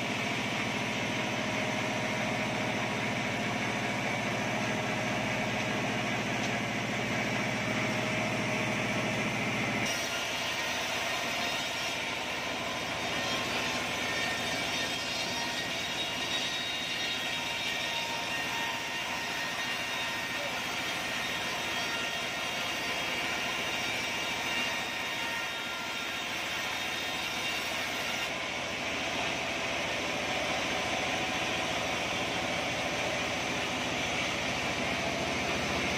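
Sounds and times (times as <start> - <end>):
forklift engine running: 0.0 - 9.9, 28.3 - 35.9
bandsaw cutting log: 0.7 - 35.9.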